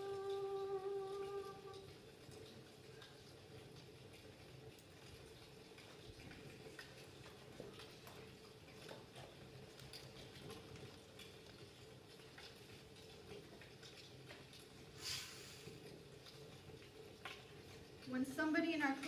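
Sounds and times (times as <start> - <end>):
low hum: 0.0 - 1.8
rustle: 0.0 - 18.1.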